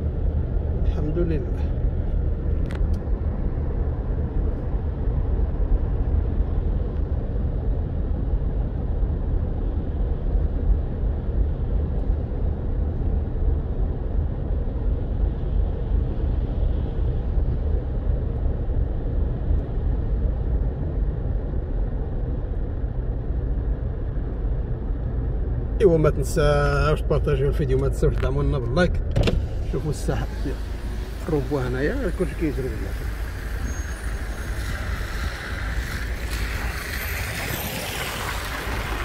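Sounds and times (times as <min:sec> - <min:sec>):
car engine rumble: 0:00.0 - 0:39.0
tyres on wet road: 0:21.1 - 0:39.0.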